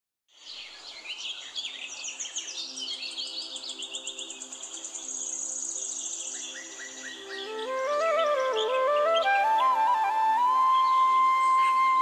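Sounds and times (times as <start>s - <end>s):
birds chirping: 6.2s - 12.0s.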